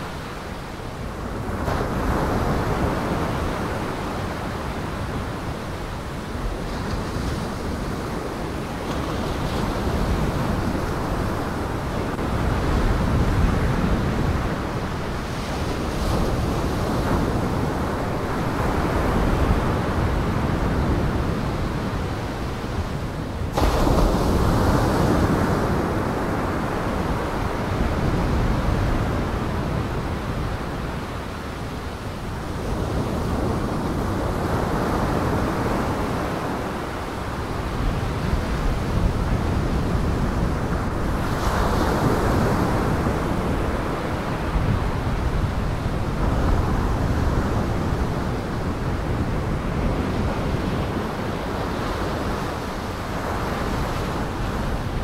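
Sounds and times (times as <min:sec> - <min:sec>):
wind: 0:00.0 - 0:55.0.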